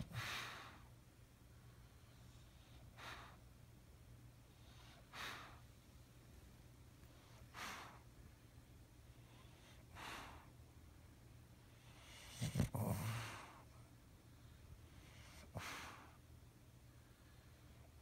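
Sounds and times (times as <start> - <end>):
dog breathing: 1.9 - 3.5, 4.5 - 5.7, 7.1 - 8.1, 9.1 - 10.6, 11.7 - 13.7.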